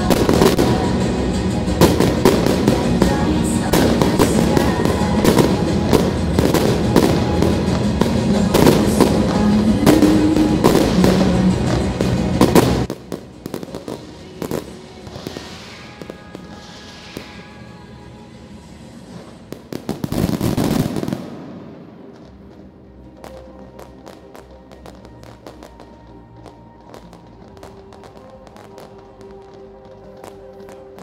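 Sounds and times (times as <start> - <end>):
hissing crackle: 0.0 - 21.3
fireworks bangs and crackles: 0.0 - 31.0
music: 0.0 - 31.0.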